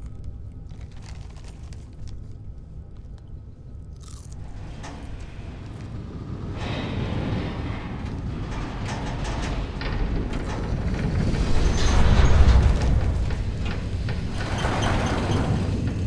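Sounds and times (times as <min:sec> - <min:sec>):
potato chips crunching: 0:00.0 - 0:02.2, 0:04.0 - 0:04.4
low rumble: 0:00.0 - 0:16.0.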